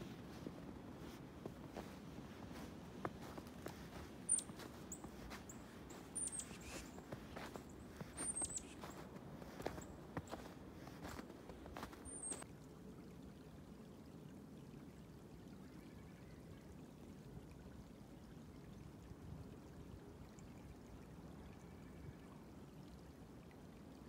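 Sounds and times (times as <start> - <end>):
footstep crunching in snow: 0.0 - 12.4
small creek flowing: 0.0 - 24.0.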